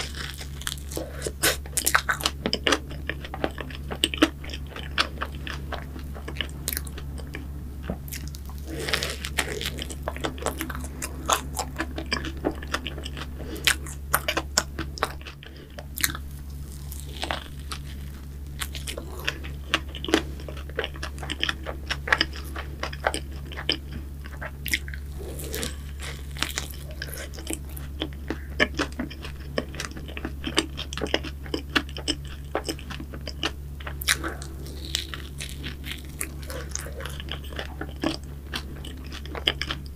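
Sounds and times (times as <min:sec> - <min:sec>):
crunchy bites and chewing: 0:00.0 - 0:39.9.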